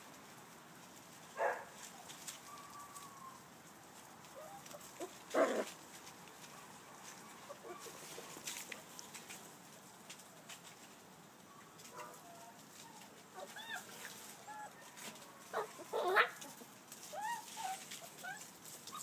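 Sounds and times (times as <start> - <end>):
puppies yapping: 4.3 - 5.8, 7.2 - 8.5, 12.0 - 14.9, 15.5 - 19.0
faint puppy squeaks: 12.2 - 15.0, 17.1 - 19.0.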